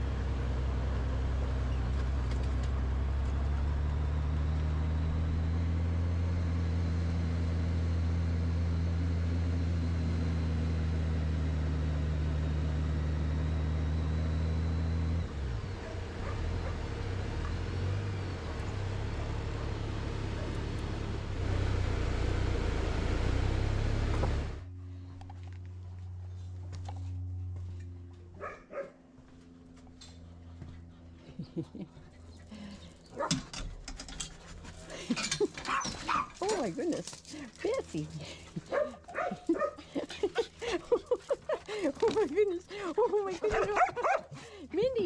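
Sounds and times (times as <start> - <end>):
motorcycle engine running: 0.0 - 28.4.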